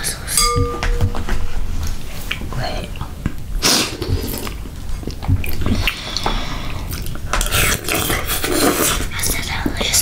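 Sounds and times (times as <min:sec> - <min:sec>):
chewing and mouth smacking: 0:06.9 - 0:09.5.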